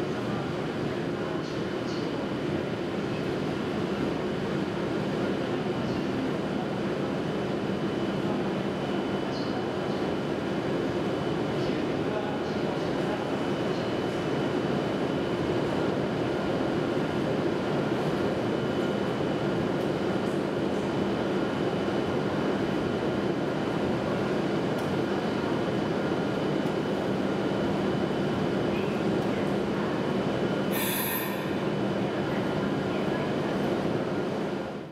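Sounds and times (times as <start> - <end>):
train equipment humming: 29.1 - 33.2
high hiss: 30.8 - 31.5.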